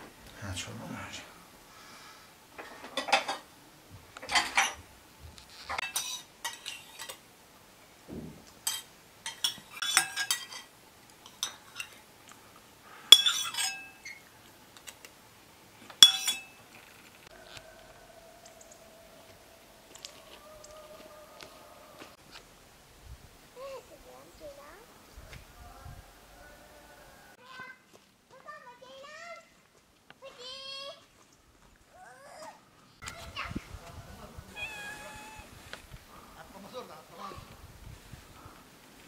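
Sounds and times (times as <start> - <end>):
tableware clinking on metal tray: 2.9 - 3.4, 4.2 - 4.8, 5.8 - 7.2, 8.6 - 12.0, 13.1 - 14.2, 16.0 - 16.6.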